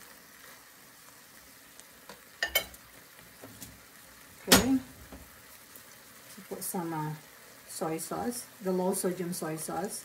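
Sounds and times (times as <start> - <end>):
stir-fry sizzling in a pan: 0.0 - 10.0
spatula clattering onto a plate: 2.4 - 2.8.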